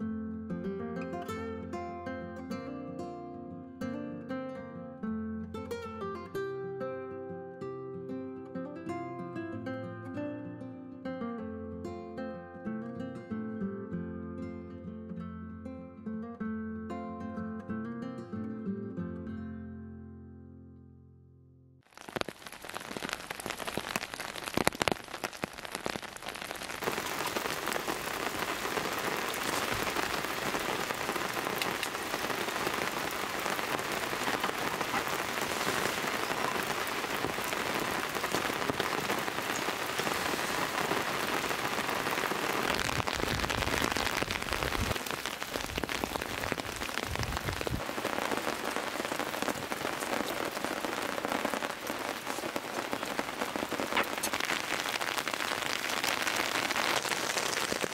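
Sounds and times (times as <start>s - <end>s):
heavy rain on a tent: 21.9s - 57.9s.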